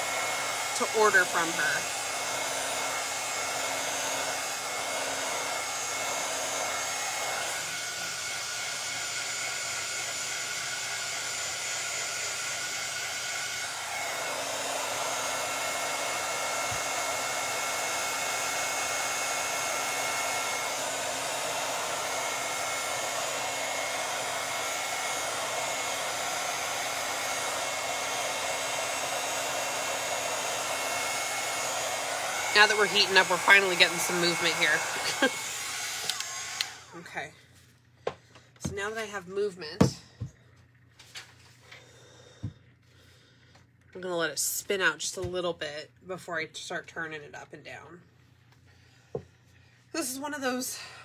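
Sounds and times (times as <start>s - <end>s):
heat gun blowing: 0.0s - 37.0s.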